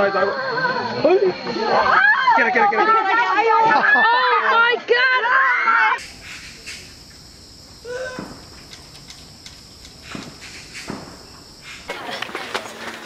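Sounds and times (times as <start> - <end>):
high hiss: 5.9 - 13.0.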